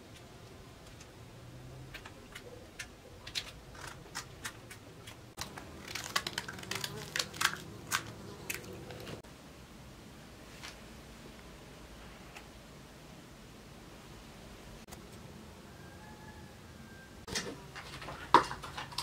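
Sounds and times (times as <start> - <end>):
mushrooms snapping and crunching: 2.8 - 9.2.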